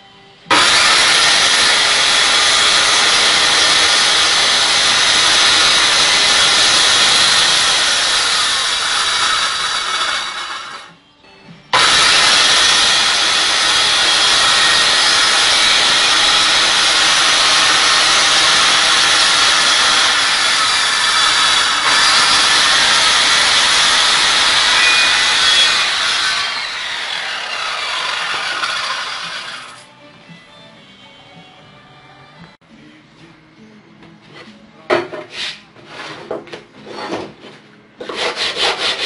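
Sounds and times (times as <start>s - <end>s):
circular saw cutting wood: 0.5s - 11.0s, 11.7s - 29.9s, 38.1s - 39.0s.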